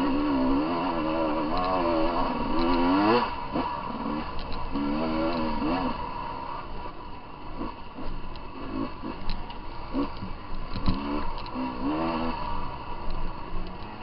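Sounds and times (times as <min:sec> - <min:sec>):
dirt bike engine revving: 0:00.0 - 0:14.0
sharp clicks and knocks: 0:02.4 - 0:03.2, 0:04.3 - 0:05.5, 0:09.1 - 0:11.7.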